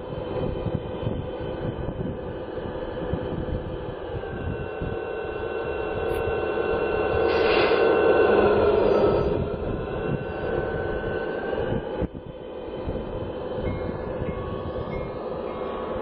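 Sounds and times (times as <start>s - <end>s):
model train engine drone: 0.0s - 16.0s
high steady tones: 2.4s - 16.0s.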